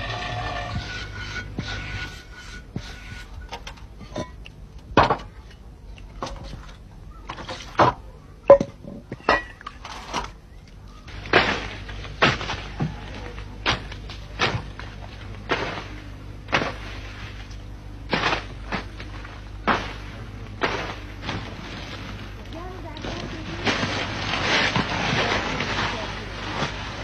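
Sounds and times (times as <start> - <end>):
leafy branches rustling: 9.7 - 27.0.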